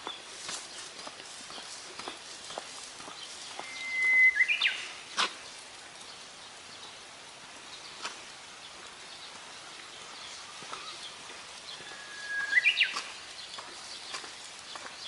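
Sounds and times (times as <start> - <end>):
outdoor background noise: 0.0 - 15.0
bird singing: 3.2 - 5.0, 9.9 - 14.9.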